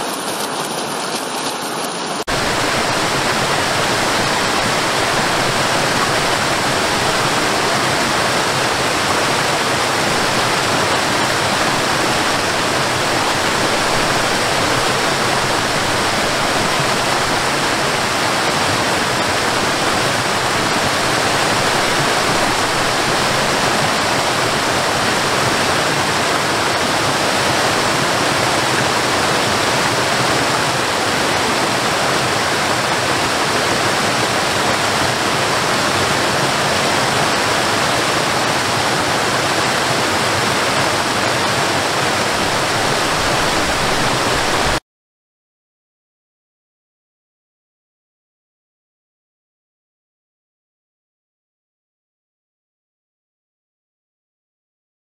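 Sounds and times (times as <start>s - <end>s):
waterfall roaring: 0.0s - 44.8s.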